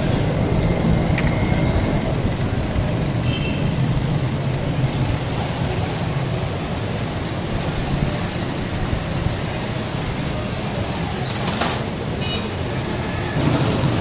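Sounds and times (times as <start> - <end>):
low mechanical rumble: 0.0 - 11.3.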